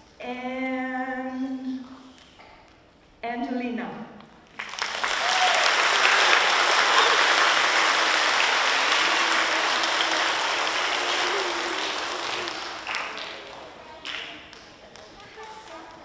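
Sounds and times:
children applauding: 4.6 - 16.0.

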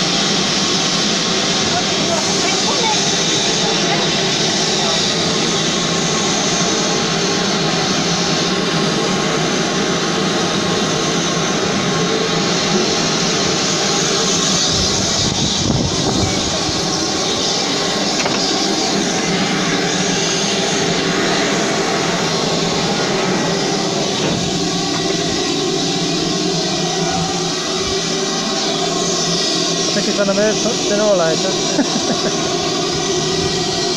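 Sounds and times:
hiss of escaping steam: 12.3 - 26.9.

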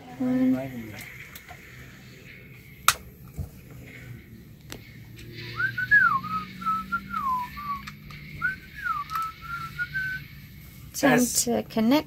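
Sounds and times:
person whistling a tune: 5.5 - 10.2.

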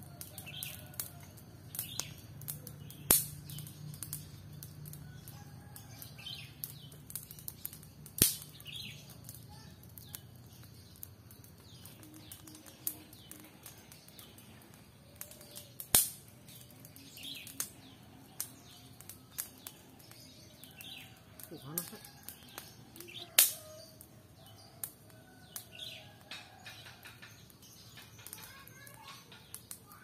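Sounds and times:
wood fire crackling: 0.0 - 30.0
small birds chirping: 0.1 - 30.0
loud sharp pops: 1.7 - 4.3, 7.0 - 9.0, 15.2 - 16.3, 22.5 - 23.7.

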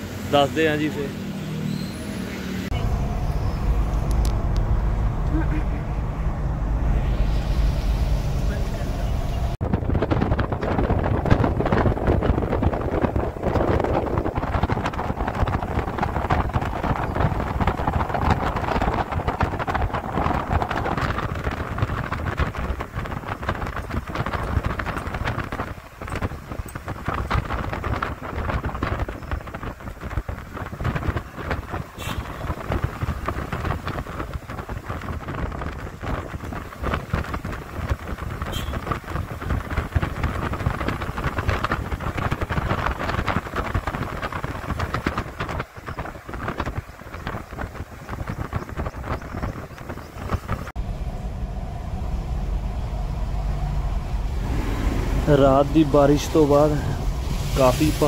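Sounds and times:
road rumble: 0.0 - 58.0
wind buffeting microphone: 2.7 - 58.0.

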